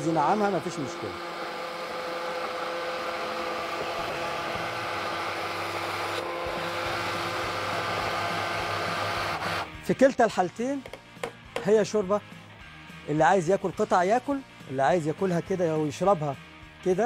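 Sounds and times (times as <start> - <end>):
immersion blender running: 0.0 - 9.8.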